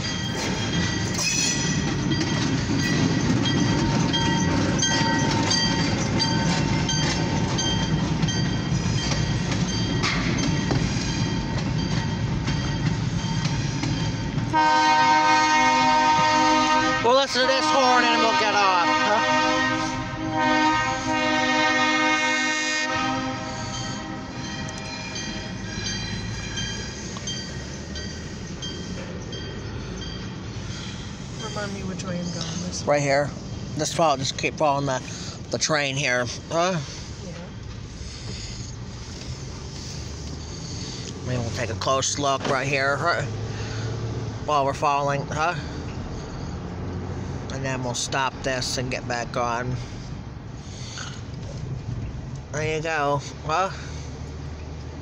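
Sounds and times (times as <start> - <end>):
wheels clicking over rail joints: 0.0 - 14.6
train rumbling past: 0.0 - 55.0
high-pitched ringing tones: 23.5 - 33.8.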